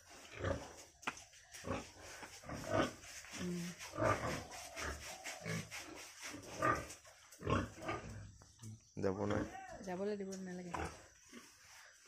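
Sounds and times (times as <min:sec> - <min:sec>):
pigs grunting: 0:00.2 - 0:00.8, 0:01.6 - 0:03.0, 0:06.4 - 0:08.3.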